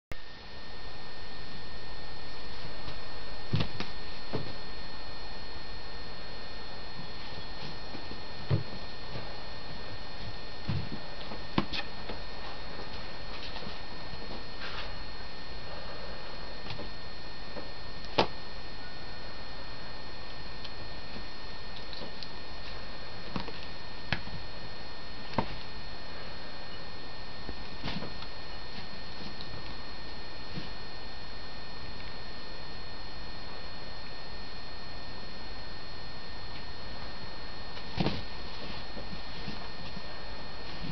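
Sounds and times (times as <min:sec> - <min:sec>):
steady hum and hiss: 0:00.1 - 0:40.9
kitten paws thumping and tapping: 0:37.8 - 0:40.0.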